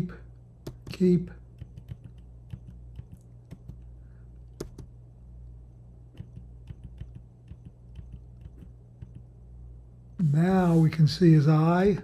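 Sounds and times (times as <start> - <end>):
faint steady hum: 0.0 - 12.0
keyboard keys clicking: 1.6 - 3.8, 4.6 - 4.9, 6.2 - 9.3.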